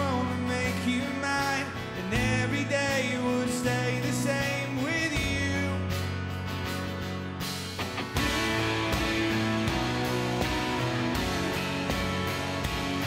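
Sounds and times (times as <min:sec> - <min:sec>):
man singing: 0:00.0 - 0:06.1
live rock band: 0:00.0 - 0:13.0
strummed acoustic guitar: 0:00.0 - 0:13.0.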